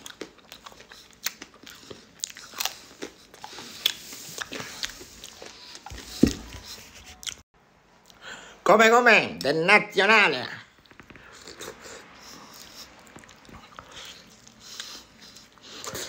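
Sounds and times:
man chewing crunchy food: 0.0 - 7.4, 10.8 - 16.0.

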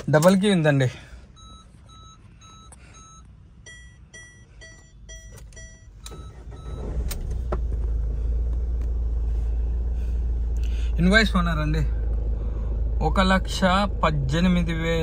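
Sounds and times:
car engine cranking and idling: 0.0 - 15.0
dashboard chime beeping: 1.3 - 6.9.

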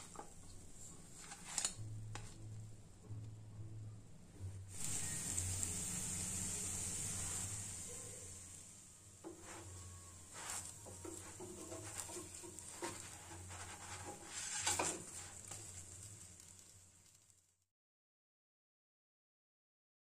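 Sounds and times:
faint frying sizzle: 0.0 - 2.4, 4.7 - 17.7
spatula scraping frying pan: 0.0 - 2.4, 8.6 - 17.2.

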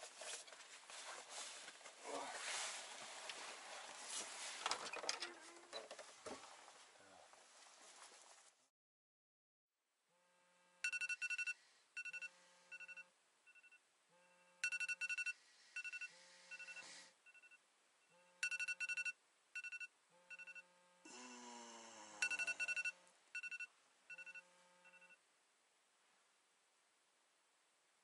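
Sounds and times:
phone alarm beeping: 10.8 - 20.7, 22.2 - 25.2
person groaning: 21.1 - 22.5.

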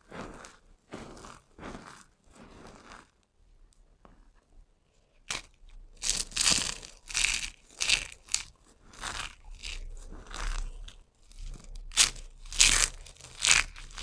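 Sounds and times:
soap strips crunching in hand: 5.2 - 14.0.

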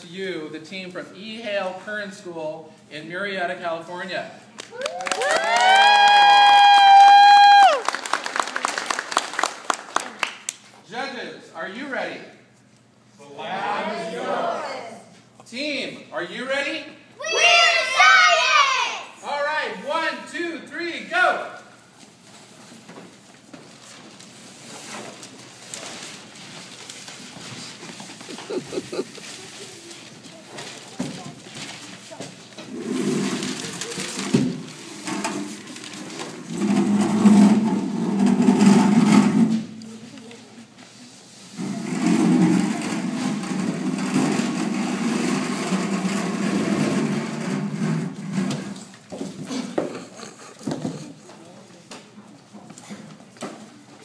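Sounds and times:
scuffling footsteps: 26.0 - 32.4.

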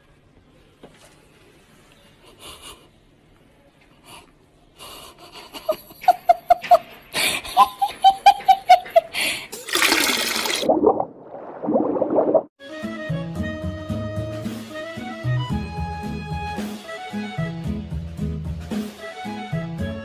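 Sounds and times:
person laughing: 5.2 - 9.3.

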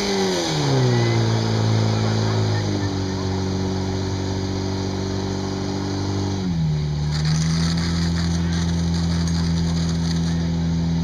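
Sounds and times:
fire pump engine running: 0.7 - 11.0
water spraying from nozzles: 5.7 - 10.8.

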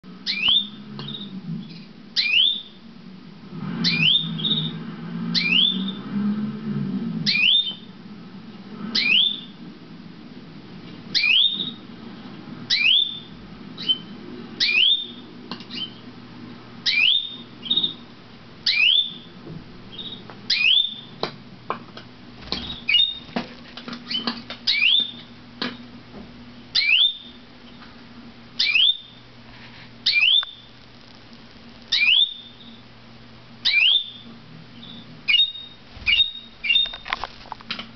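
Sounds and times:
canary calling: 0.2 - 2.8, 3.8 - 6.1, 7.2 - 7.9, 8.9 - 9.6, 11.1 - 11.9, 12.7 - 16.0, 16.8 - 18.0, 18.6 - 21.2, 22.4 - 23.4, 24.0 - 25.4, 26.7 - 27.4, 28.6 - 29.2, 30.0 - 30.7, 31.9 - 32.8, 33.6 - 37.1.

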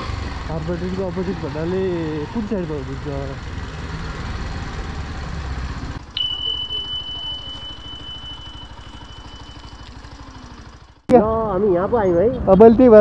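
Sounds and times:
motorcycle engine: 0.0 - 13.0
high-pitched electronic beep: 6.0 - 10.0.

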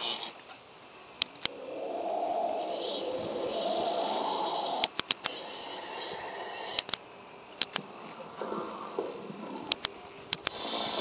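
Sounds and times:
sharp clicks: 1.2 - 1.6, 4.8 - 5.5, 6.6 - 7.9, 9.6 - 11.0.

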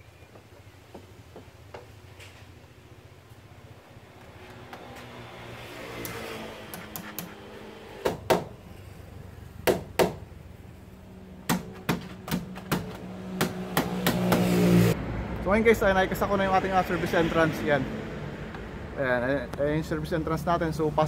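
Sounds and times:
sharp knocks: 9.6 - 10.2, 11.5 - 14.6.

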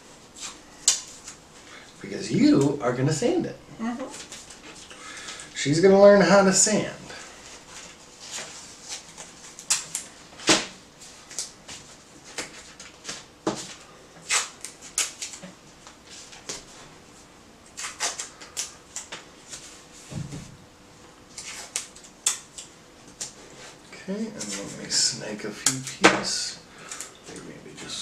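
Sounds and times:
tape and sandpaper crackling: 17.8 - 19.7.

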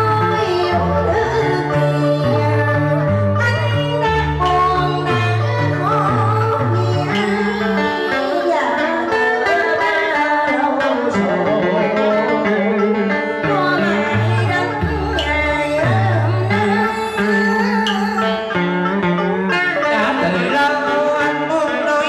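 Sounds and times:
plucked strings with bent notes: 0.0 - 22.0
steady bass line: 12.3 - 20.4.

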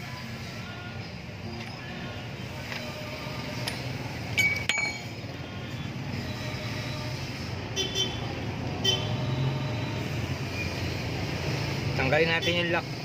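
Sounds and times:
metal tools clinking: 1.5 - 2.0, 3.6 - 5.2.

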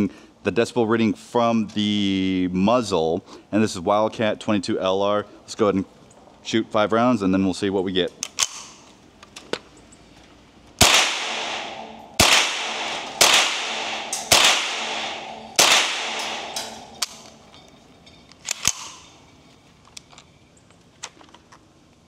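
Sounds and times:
rifle shots with echo: 10.8 - 17.5
faint sharp cracks: 10.8 - 17.8.

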